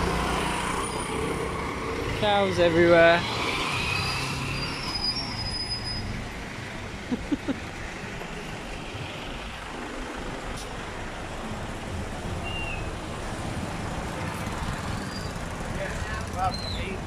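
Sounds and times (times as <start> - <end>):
motorbikes and scooters passing: 0.0 - 4.8, 13.0 - 17.0
traffic rumble: 0.0 - 17.0.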